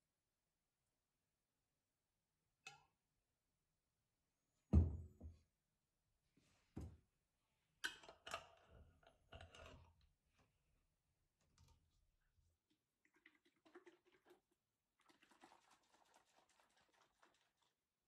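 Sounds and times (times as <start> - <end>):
glass bottle thud on table: 4.8 - 5.1.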